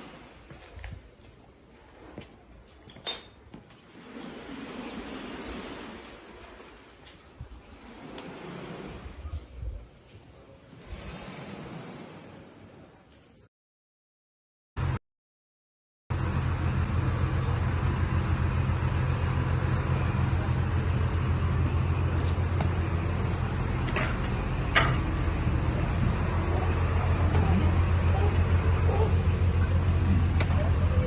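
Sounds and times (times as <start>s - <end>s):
broad rushing noise: 16.1s - 31.0s
low mechanical hum: 16.1s - 31.0s.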